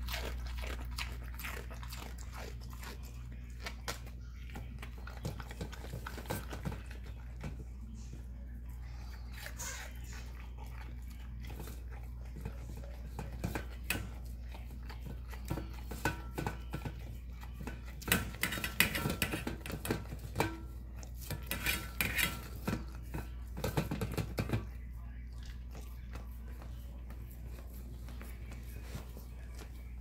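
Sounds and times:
dog licking and chewing: 0:00.0 - 0:08.0, 0:08.6 - 0:16.0, 0:24.6 - 0:29.9.

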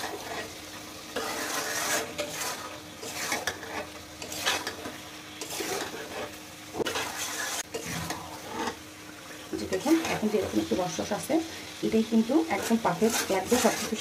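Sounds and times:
spatula scraping a pan: 0:00.0 - 0:08.8, 0:09.4 - 0:11.2, 0:12.2 - 0:14.0
oil sizzling: 0:00.0 - 0:14.0.

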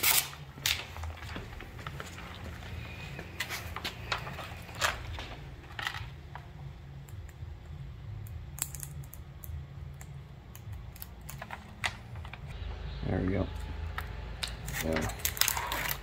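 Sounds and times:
low steady hum: 0:00.4 - 0:16.0
tint film crinkling and clicking: 0:03.3 - 0:06.5, 0:08.6 - 0:12.5, 0:13.9 - 0:16.0.

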